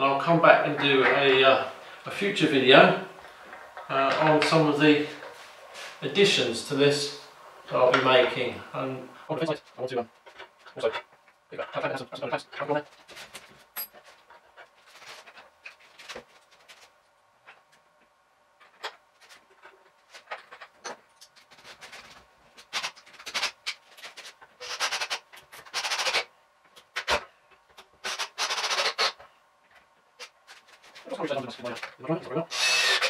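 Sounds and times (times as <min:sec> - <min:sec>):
harsh rasping bursts: 0:24.6 - 0:26.3, 0:28.0 - 0:29.2, 0:32.5 - 0:33.0.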